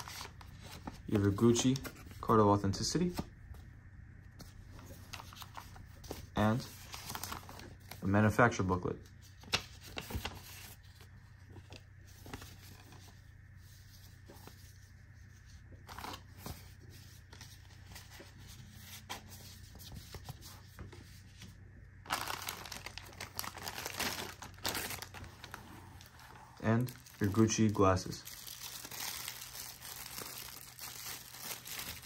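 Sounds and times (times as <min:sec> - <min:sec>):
paper rustling: 0:09.2 - 0:32.0
plastic bag crinkling: 0:22.1 - 0:32.0.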